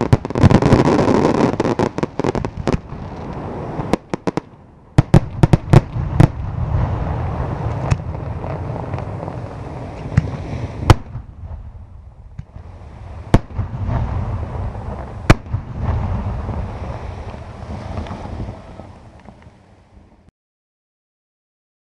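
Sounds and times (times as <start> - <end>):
fireworks rumble and crackle: 0.0 - 20.3
firework shells bursting: 12.3 - 19.5.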